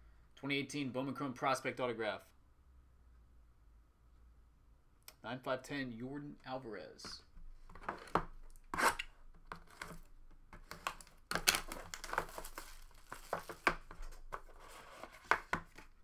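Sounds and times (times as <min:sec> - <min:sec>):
plastic shrink-wrap crinkling: 0:10.7 - 0:13.8.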